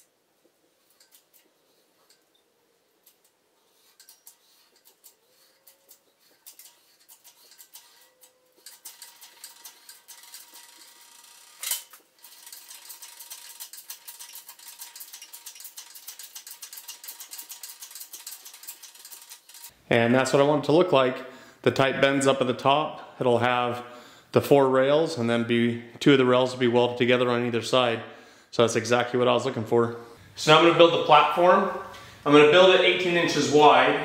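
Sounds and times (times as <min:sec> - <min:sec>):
hand pump metallic clicks: 0:00.9 - 0:02.3, 0:03.0 - 0:19.8.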